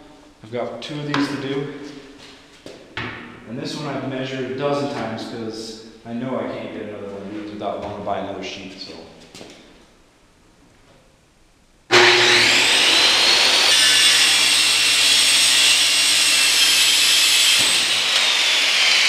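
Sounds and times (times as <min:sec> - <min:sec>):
circular saw cutting plywood: 0:11.9 - 0:19.0.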